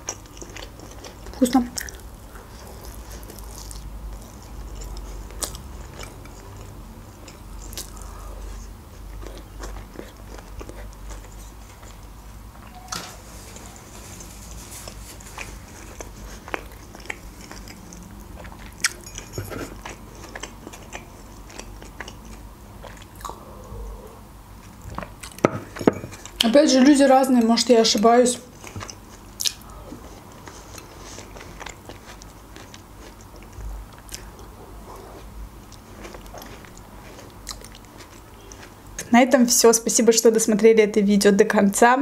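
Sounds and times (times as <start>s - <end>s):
person chewing food: 0.0s - 12.8s, 13.4s - 27.5s, 28.4s - 39.1s.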